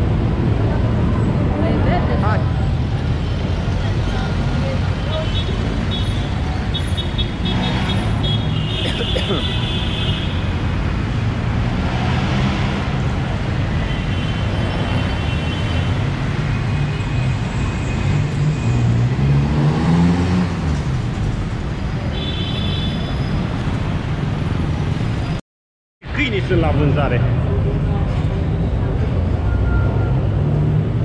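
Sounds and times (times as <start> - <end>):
vehicle engines rumbling: 0.0 - 25.4, 26.0 - 31.0
engine revving: 11.6 - 13.0, 18.0 - 20.9.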